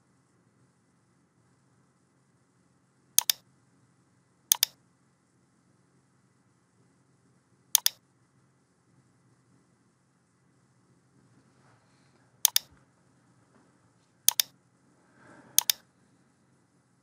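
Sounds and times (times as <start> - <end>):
faint hum: 0.0 - 17.0
computer mouse clicking: 3.2 - 3.4, 4.5 - 4.8, 7.8 - 8.0, 12.5 - 12.7, 14.3 - 14.5, 15.6 - 15.8.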